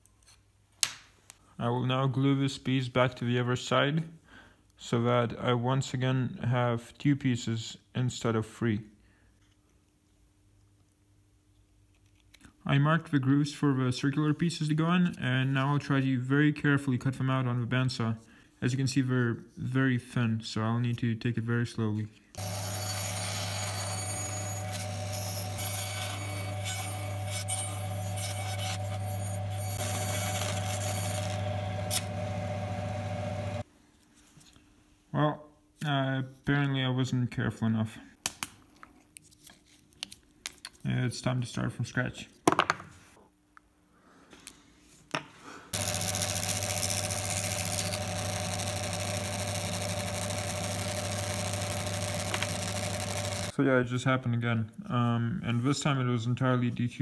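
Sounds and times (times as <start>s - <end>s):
blade scraping wood: 22.4s - 32.2s
bandsaw humming: 22.4s - 33.6s, 45.8s - 53.5s.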